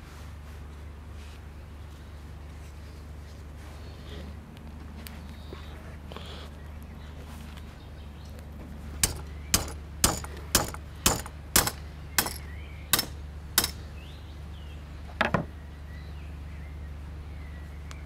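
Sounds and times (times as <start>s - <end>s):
metal bar knocking on wood: 9.0s - 12.4s.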